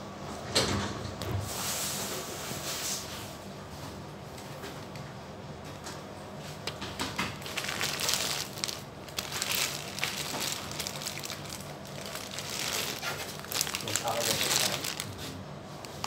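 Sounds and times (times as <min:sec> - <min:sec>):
plastic bags crinkling: 0:07.2 - 0:16.0.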